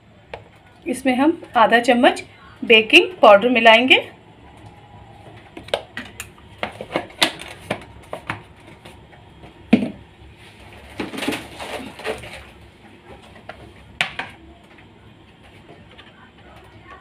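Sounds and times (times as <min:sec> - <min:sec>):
rustling scrape: 0:10.3 - 0:12.7.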